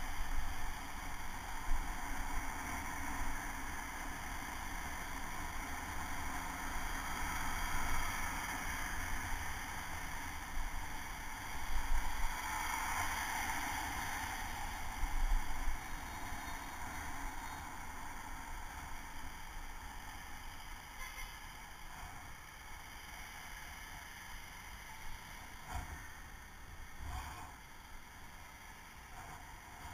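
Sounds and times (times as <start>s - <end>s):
street traffic hum: 0.0s - 29.9s
wind rushing over camera: 25.1s - 27.8s.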